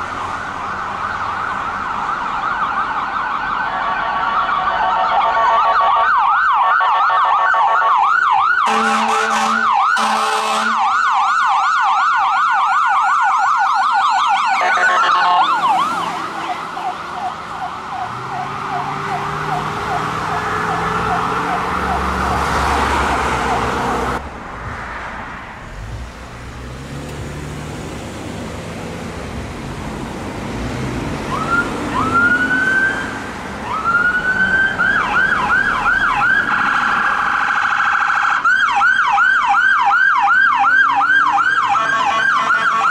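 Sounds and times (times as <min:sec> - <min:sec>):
ambulance siren yelping: 0:00.0 - 0:24.2, 0:31.2 - 0:42.9
second siren wailing: 0:00.2 - 0:24.2, 0:31.2 - 0:42.9
horn blasts: 0:08.7 - 0:10.8, 0:14.6 - 0:15.6, 0:41.7 - 0:42.9.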